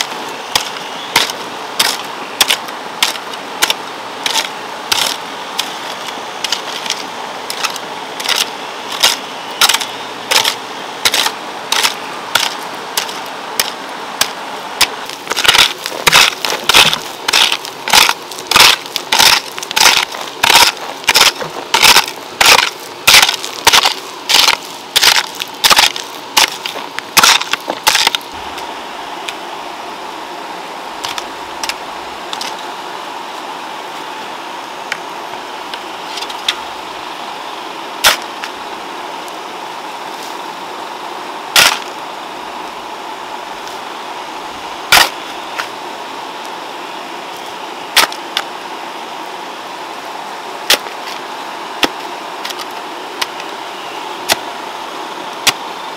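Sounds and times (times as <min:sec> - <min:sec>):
hoe chopping into soil: 0:00.5 - 0:05.7, 0:06.4 - 0:28.2, 0:41.6 - 0:41.9, 0:44.9 - 0:45.2, 0:48.0 - 0:48.2, 0:50.7 - 0:50.9, 0:55.4 - 0:55.6.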